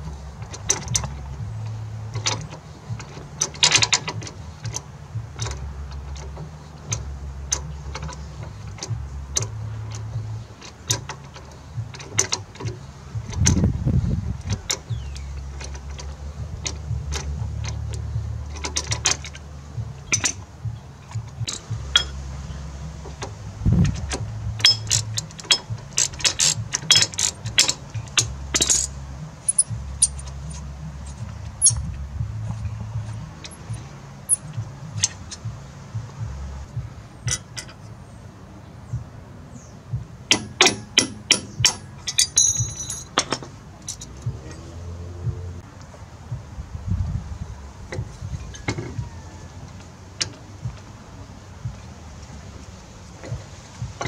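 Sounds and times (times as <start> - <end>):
socket ratchet clicking: 0.3 - 36.3, 37.2 - 37.9, 40.3 - 44.4.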